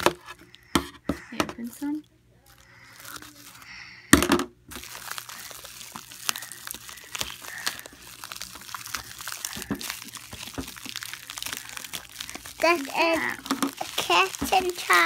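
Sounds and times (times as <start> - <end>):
bubble wrap and plastic crinkling: 1.2 - 3.9, 4.7 - 15.0.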